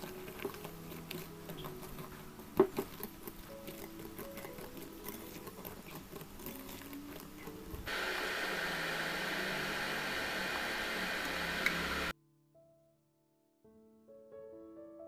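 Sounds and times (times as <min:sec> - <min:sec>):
stirring in a steel pan: 0:00.0 - 0:11.2
steady hiss of toasting flour: 0:00.0 - 0:12.1.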